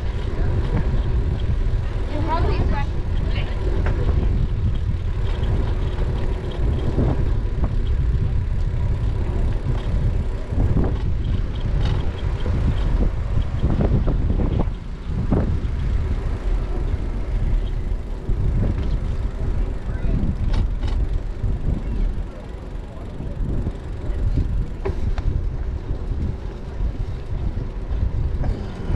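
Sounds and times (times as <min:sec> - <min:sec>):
bicycle tyres rumbling on concrete: 0:00.0 - 0:28.9
wind buffeting microphone: 0:00.0 - 0:28.9.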